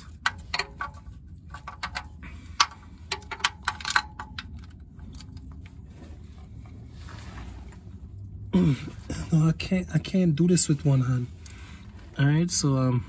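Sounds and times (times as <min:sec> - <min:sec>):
low steady hum: 0:00.0 - 0:13.0
wrench clinking on bolts: 0:00.1 - 0:05.3.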